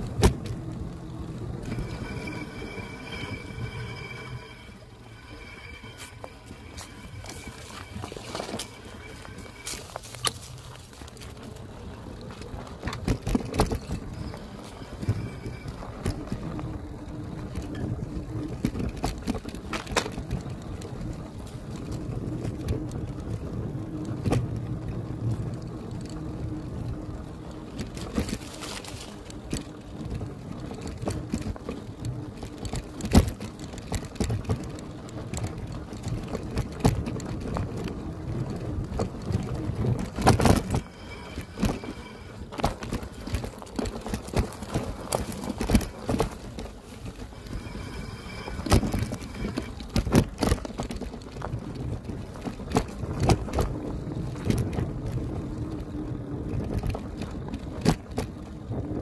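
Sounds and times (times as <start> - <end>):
low rumble: 0.0 - 10.2, 37.6 - 43.6, 44.5 - 50.3
bike frame and tyres rattling: 0.0 - 59.0
faint high tone: 1.1 - 10.0, 47.2 - 49.8.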